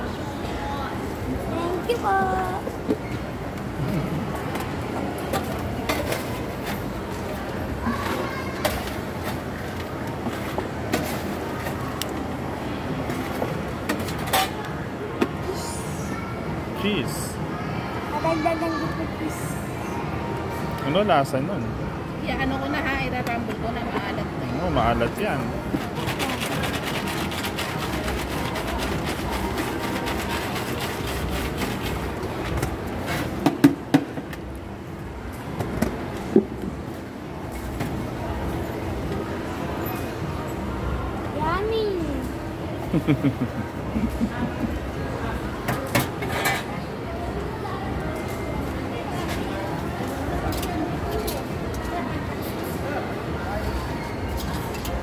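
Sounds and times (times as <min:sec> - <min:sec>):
steady background noise: 0:00.0 - 0:55.0
fries rattling in plastic shaker: 0:25.8 - 0:32.6.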